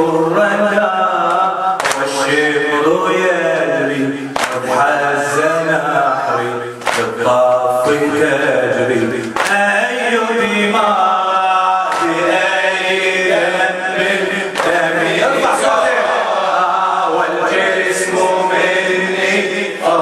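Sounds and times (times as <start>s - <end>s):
men chanting a lament: 0.0s - 20.0s
hand slaps: 1.3s - 2.1s, 4.4s - 4.6s, 6.8s - 7.1s, 9.2s - 9.6s, 14.6s - 14.8s.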